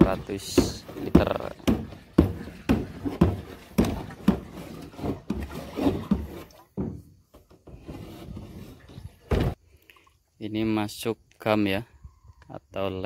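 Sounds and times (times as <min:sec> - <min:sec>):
water sloshing in a drum: 0:00.0 - 0:10.3.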